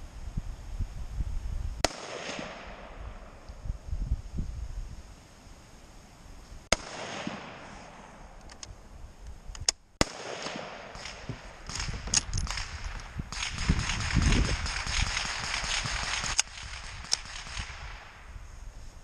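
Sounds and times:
rifle shots: 1.8 - 3.4, 6.7 - 8.2, 10.0 - 18.2
rifle bolt clicks: 8.4 - 8.7.

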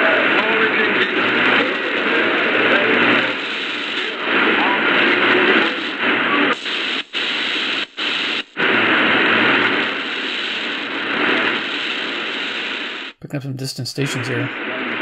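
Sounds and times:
shortwave radio static: 13.2 - 14.6.

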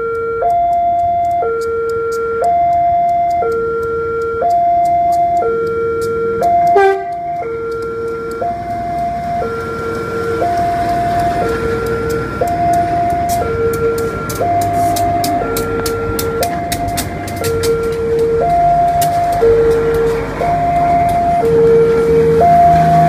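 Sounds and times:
level crossing two-tone alarm: 0.0 - 23.0
train wheels rumbling on rails: 4.7 - 23.0.

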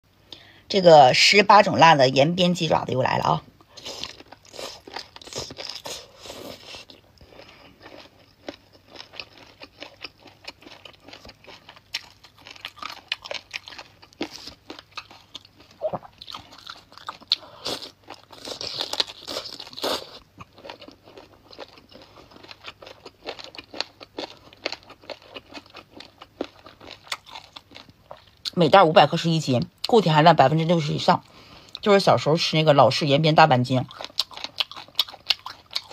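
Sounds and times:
person chewing crunchily: 3.6 - 28.6, 33.8 - 35.9.

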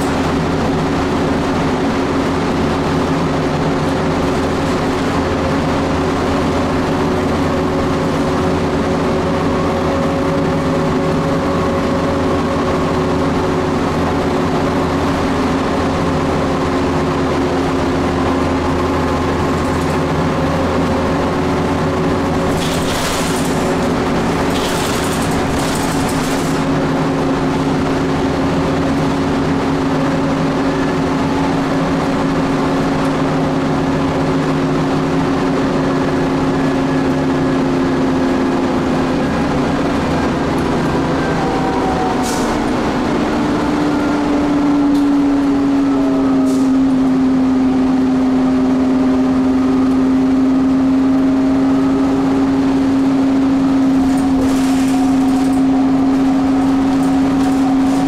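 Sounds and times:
bus engine droning: 0.0 - 58.0
tyre and road noise: 0.0 - 58.0.

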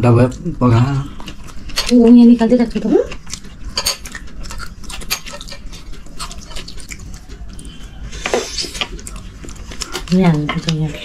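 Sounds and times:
cutlery clinking on dishes: 3.7 - 6.7.

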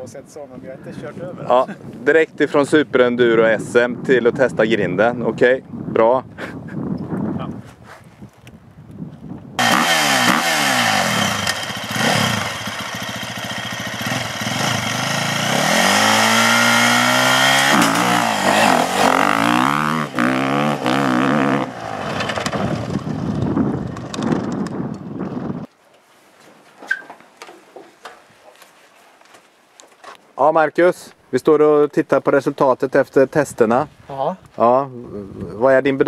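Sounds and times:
dirt bike engine revving: 9.6 - 24.6.

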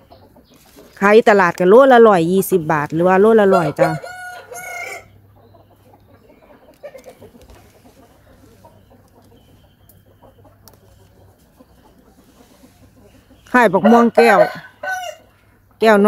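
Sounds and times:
chickens clucking: 0.0 - 16.0.

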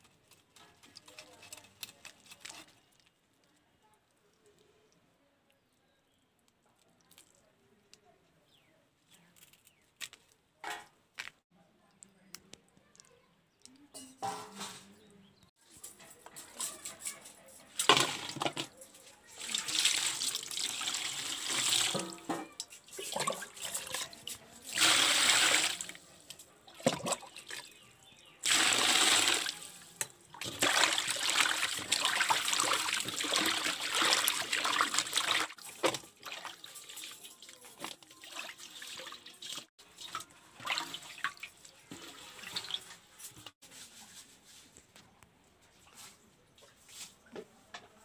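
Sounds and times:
water pouring into basin: 19.4 - 22.2, 22.9 - 26.0, 28.4 - 42.9.

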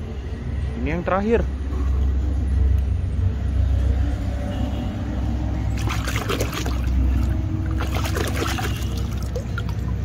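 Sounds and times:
water splashing in a basin: 5.6 - 10.0.

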